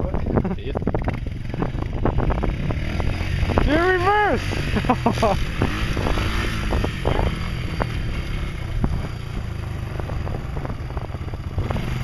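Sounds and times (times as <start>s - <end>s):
quad bike engine running: 0.0s - 12.0s.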